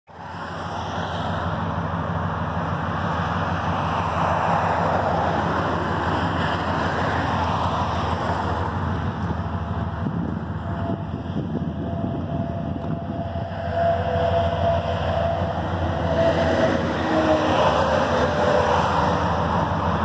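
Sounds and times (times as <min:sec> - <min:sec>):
truck engine idling: 0:01.2 - 0:17.0.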